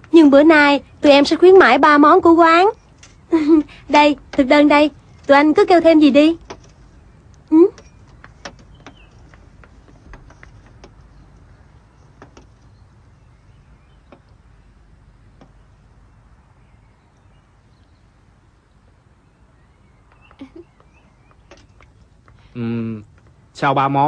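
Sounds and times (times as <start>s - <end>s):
low steady hiss: 0.0s - 24.0s
faint clicks and taps: 6.4s - 12.8s, 14.0s - 14.4s, 15.4s - 15.7s, 20.1s - 23.4s.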